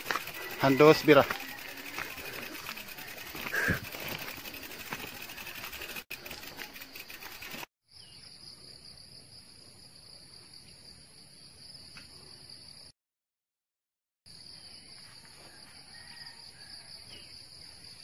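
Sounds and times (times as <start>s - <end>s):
bike scuffing and rustling on dirt: 0.0s - 7.7s
insects chirring: 0.0s - 12.9s.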